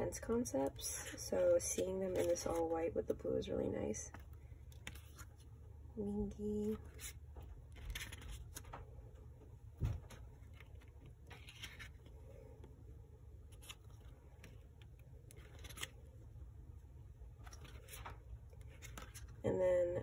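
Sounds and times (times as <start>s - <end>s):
paper pages being flipped: 0.7s - 2.8s, 4.1s - 5.5s, 6.6s - 8.9s, 10.1s - 12.7s, 13.4s - 16.2s, 17.4s - 19.4s
soft low thump: 9.8s - 10.1s.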